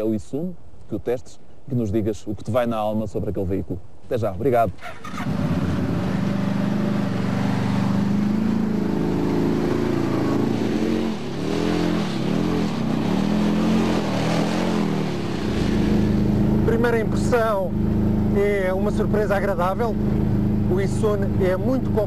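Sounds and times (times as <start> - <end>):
utility vehicle engine revving: 5.0 - 22.0.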